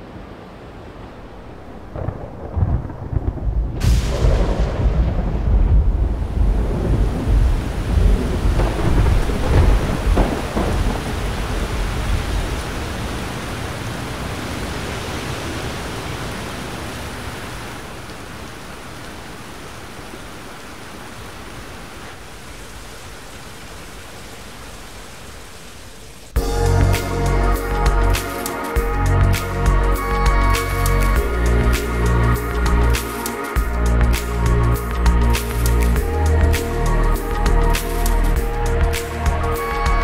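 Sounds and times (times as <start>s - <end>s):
heavy rain: 0.0s - 40.0s
thunder rumbling: 1.5s - 12.9s.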